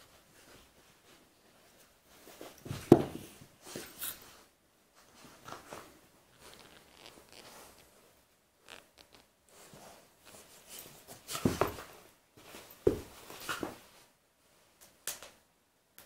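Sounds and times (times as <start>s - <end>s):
dogs scuffling and snuffling: 9.6s - 14.0s.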